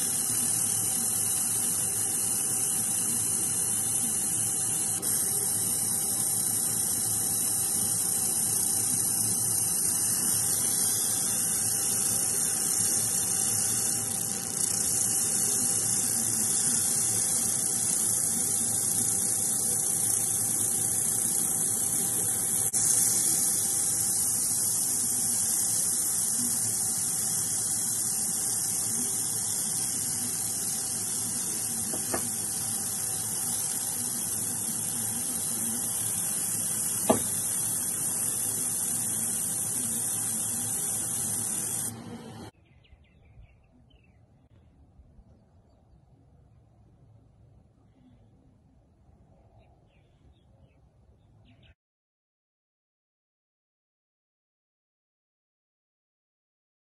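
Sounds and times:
laser engraving hiss and buzz: 0.0 - 42.5
faint steady hum: 0.0 - 42.6, 43.7 - 51.3.

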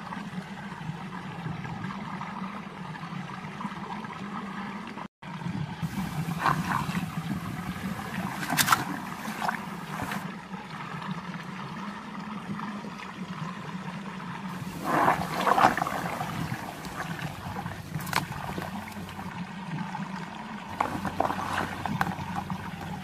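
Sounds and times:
water swirling in a whirlpool: 0.0 - 23.0
short splashes or knocks: 5.8 - 10.2, 14.6 - 19.3, 20.7 - 23.0.

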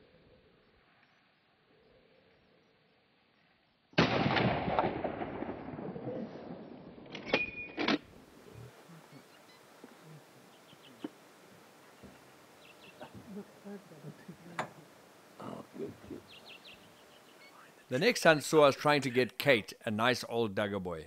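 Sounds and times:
rifle shot: 4.0 - 6.6.

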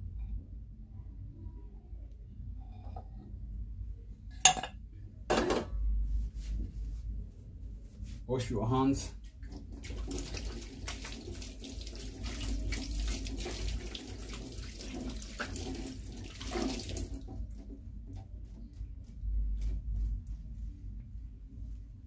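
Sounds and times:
tap water running into sink: 9.4 - 17.9.

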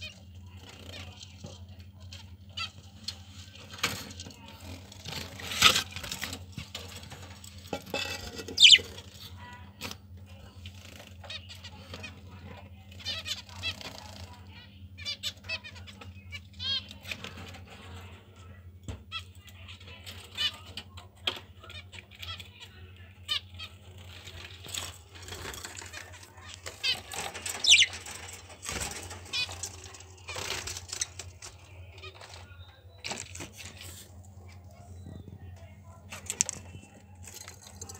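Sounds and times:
wings rustling and fluttering: 0.0 - 14.5, 19.1 - 37.9
scrapes and knocks of clay pot: 7.6 - 8.6
budgie chirp: 8.6 - 8.9, 26.8 - 28.0.

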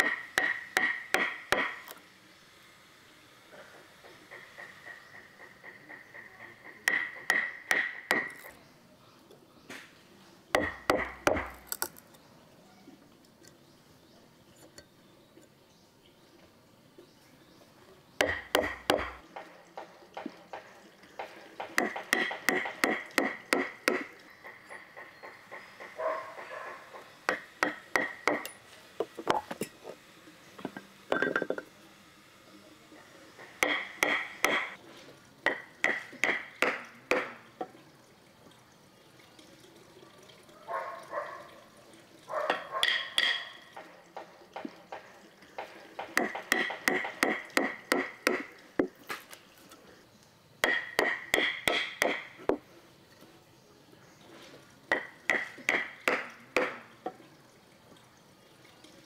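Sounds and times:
hammer driving nails into wood: 0.0 - 2.0, 6.2 - 8.5, 10.6 - 12.0, 18.2 - 19.5, 21.2 - 24.2, 33.6 - 34.8, 46.0 - 48.9, 50.6 - 52.3.

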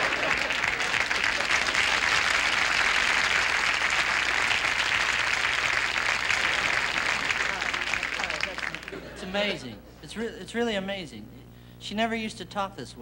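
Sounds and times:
studio audience applauding: 0.0 - 9.5.

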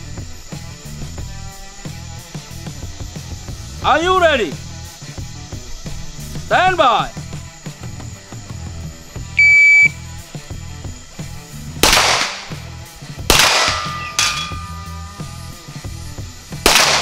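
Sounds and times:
shot timer start beep: 9.4 - 10.0
pistol shots echoing: 11.8 - 12.6, 13.3 - 14.9, 16.6 - 17.0.

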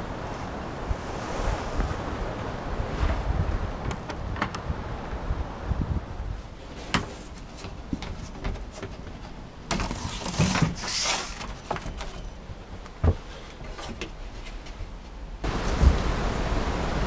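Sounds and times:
scraping rustle: 6.5 - 15.2.

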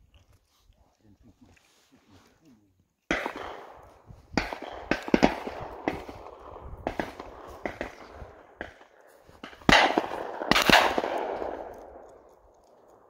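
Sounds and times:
shotgun shots with echo: 3.1 - 12.0
faint sharp cracks: 3.1 - 13.0.

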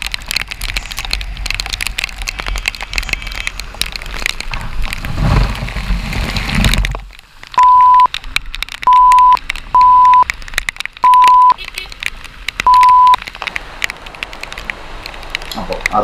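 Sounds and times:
heavy rain pattering on camera: 0.0 - 16.0
traffic rush: 0.0 - 16.0
steady beeps: 7.6 - 8.1, 8.9 - 10.2, 11.0 - 11.6, 12.7 - 13.2.

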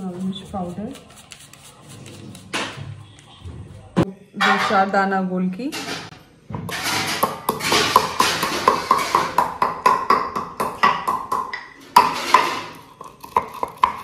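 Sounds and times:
wooden pestle pounding in mortar: 7.2 - 14.0.

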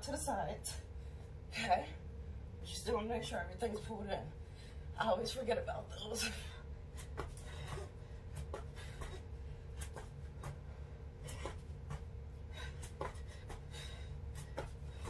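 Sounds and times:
steady low hum: 0.0 - 15.0
feet tapping on foam mat: 7.0 - 15.0.

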